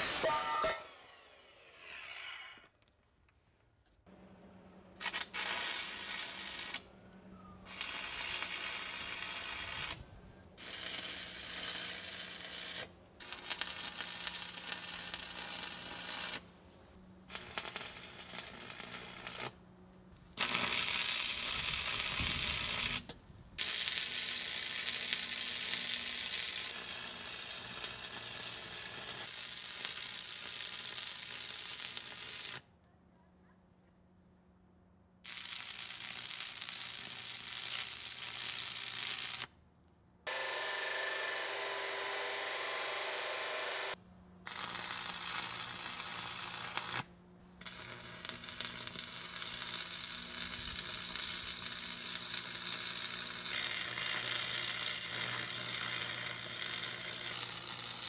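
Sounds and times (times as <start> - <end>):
arc welding crackling sizzle: 5.0 - 6.8, 7.6 - 16.5, 17.2 - 19.6, 20.4 - 32.6, 35.2 - 39.5, 40.3 - 58.0.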